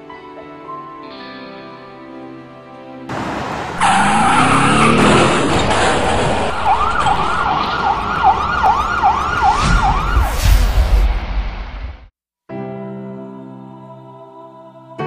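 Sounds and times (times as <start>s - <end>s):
soft sad music: 0.0s - 3.1s, 12.5s - 15.0s
ambulance rushing past: 3.1s - 10.6s
siren yelping: 6.4s - 10.4s.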